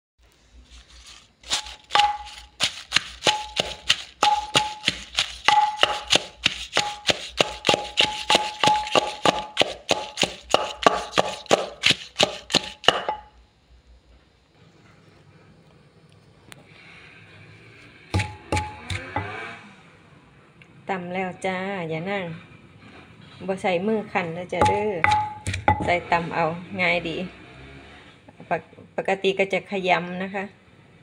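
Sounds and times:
pestle pounding in a mortar: 1.4 - 13.3, 18.2 - 19.4, 24.6 - 26.0.

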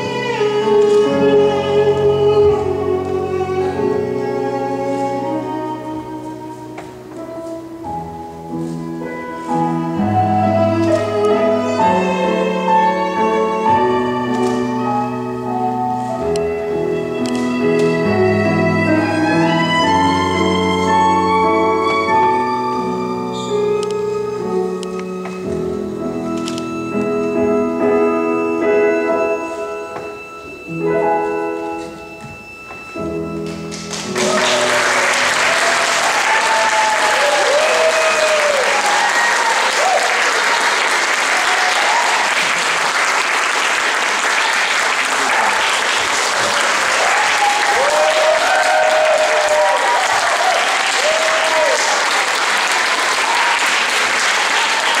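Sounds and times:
piano music: 0.0 - 55.0
audience applause: 33.7 - 55.0
cheers and whoops: 34.2 - 42.7, 44.3 - 55.0.

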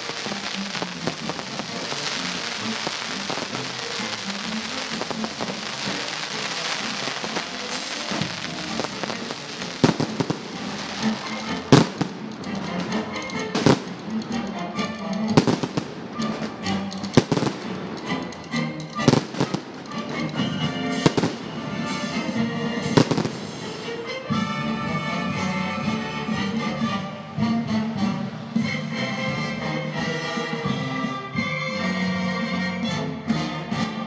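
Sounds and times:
fireworks bangs: 0.0 - 14.2, 15.4 - 18.2, 19.0 - 22.2, 22.8 - 23.8
fireworks crackling: 0.0 - 24.0
music: 0.0 - 34.0.

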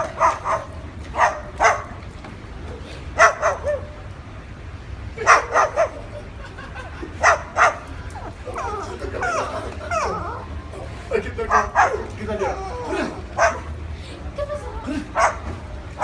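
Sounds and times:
dog barking: 0.0 - 2.0, 3.2 - 3.9, 5.2 - 6.0, 7.2 - 7.8, 11.5 - 12.1, 13.4 - 13.7, 15.2 - 15.5.

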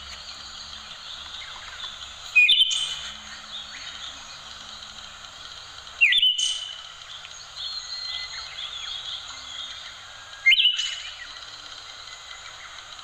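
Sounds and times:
background hiss: 0.0 - 13.0
soft bird chirps: 0.0 - 13.0
thrush whistled song: 0.2 - 5.0, 6.0 - 11.5.

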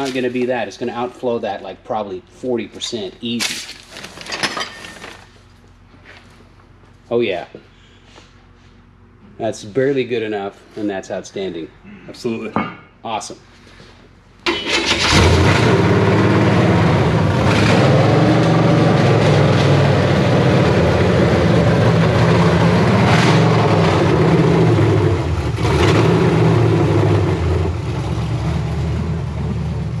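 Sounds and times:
vee eight engine running: 14.5 - 30.0.

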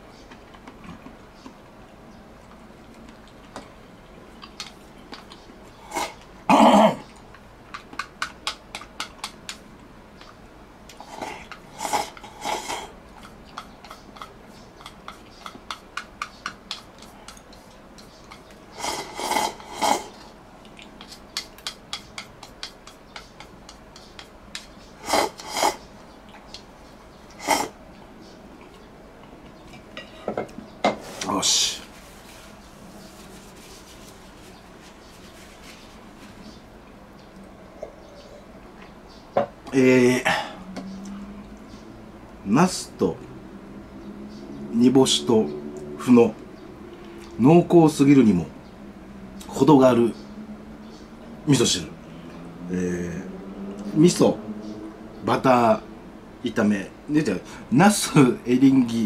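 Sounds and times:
utensils clicking against dishes: 11.4 - 20.0, 21.0 - 25.8.

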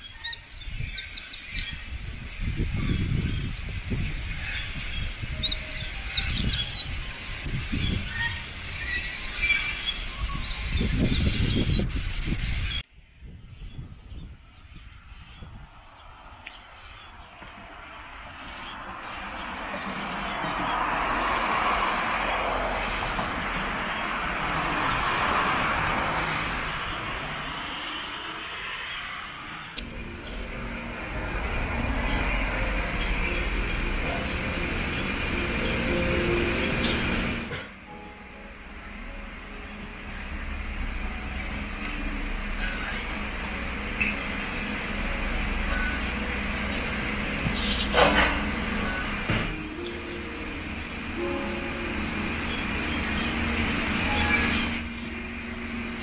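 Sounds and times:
birds chirping: 0.0 - 12.9, 13.5 - 56.0
cars passing on a road: 0.0 - 13.0, 14.4 - 56.0
wind buffeting microphone: 0.0 - 27.7.

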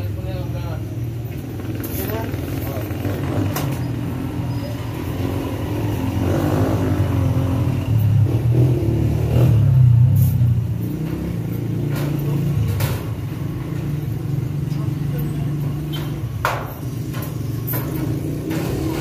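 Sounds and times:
vehicle engine running: 0.0 - 19.0
sharp knocks: 15.9 - 18.8.

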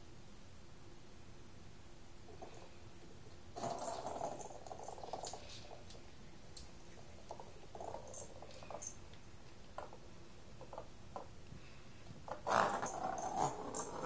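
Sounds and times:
plastic ball rolling and clicking: 3.6 - 11.3, 12.2 - 14.0.

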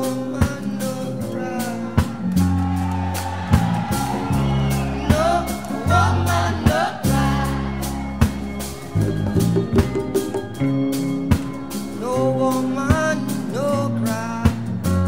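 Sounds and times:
person singing: 0.0 - 2.5, 4.0 - 8.2, 11.9 - 15.0
sustained instrumental chords: 1.6 - 14.9.

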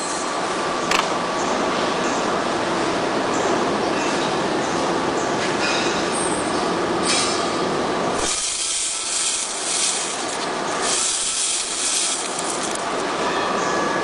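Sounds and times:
loud hiss: 8.2 - 13.0
machine clatter: 8.2 - 13.0.

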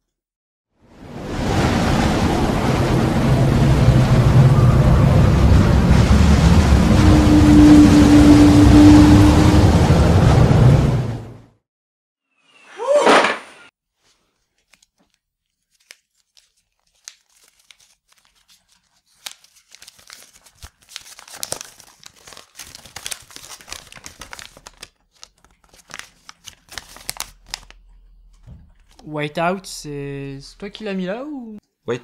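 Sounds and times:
paper crinkling: 14.0 - 29.0.

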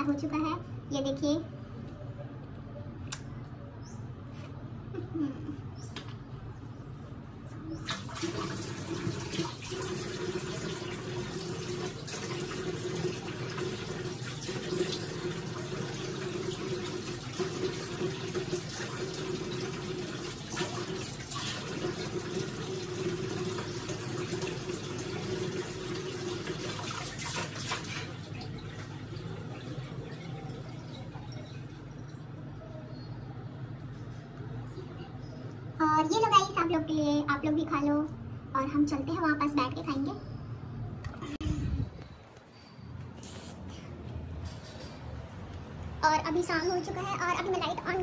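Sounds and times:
water running from tap: 7.9 - 32.1.

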